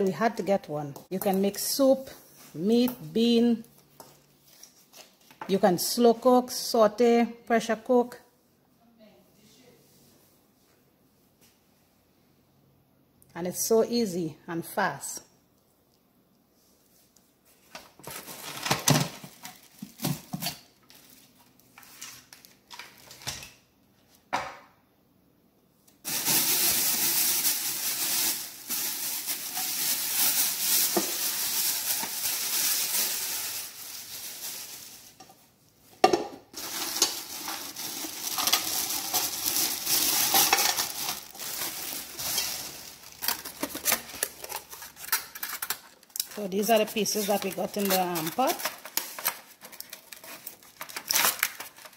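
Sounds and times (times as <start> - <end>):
plastic bag crinkling: 18.0 - 23.2, 26.0 - 35.6, 36.5 - 51.9.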